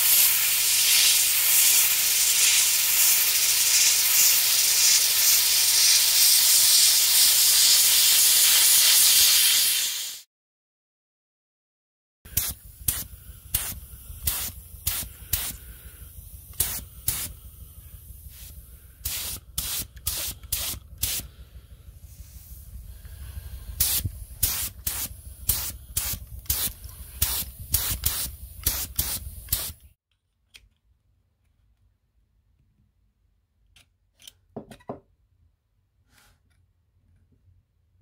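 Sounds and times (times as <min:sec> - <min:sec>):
spray gun hissing bursts: 0:00.0 - 0:10.2, 0:12.3 - 0:29.9
low rumble: 0:12.6 - 0:29.8.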